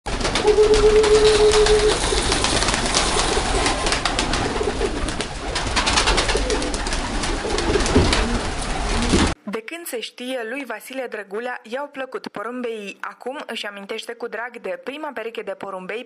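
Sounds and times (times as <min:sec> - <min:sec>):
wings flapping: 0:00.1 - 0:09.4
pigeons cooing: 0:00.2 - 0:09.4.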